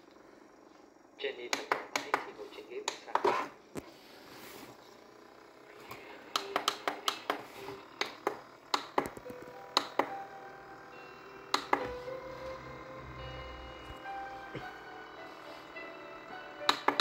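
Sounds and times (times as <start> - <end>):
faint steady tones: 0.0 - 17.0
device buttons clicking: 6.3 - 7.4.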